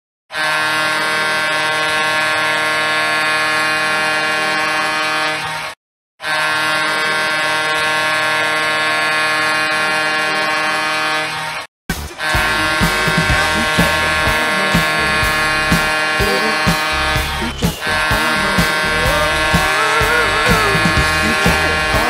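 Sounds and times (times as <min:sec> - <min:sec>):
air horn blasts: 0:00.3 - 0:22.0.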